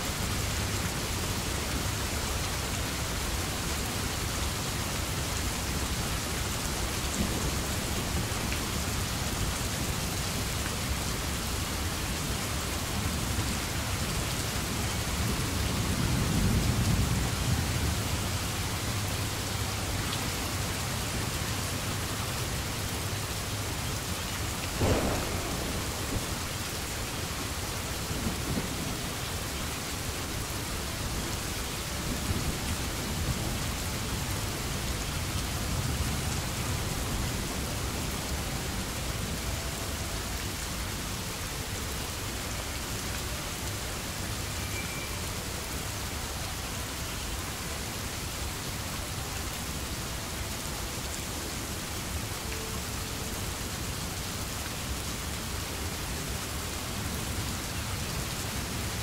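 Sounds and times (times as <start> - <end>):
steady rain falling: 0.0 - 59.0
sharp thunderclap: 24.7 - 27.5
low rumbling thunder: 24.7 - 29.5.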